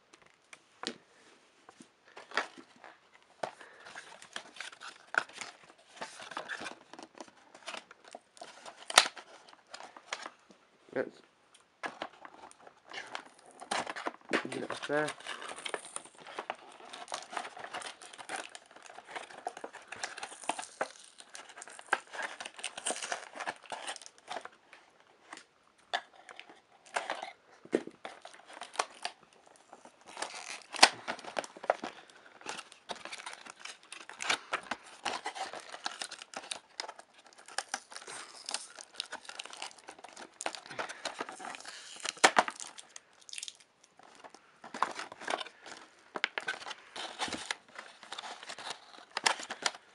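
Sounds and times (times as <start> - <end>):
cardboard packaging tearing and rustling: 3.6 - 10.4, 11.9 - 24.6, 29.8 - 49.9
sharp cardboard cracks: 30.1 - 43.6.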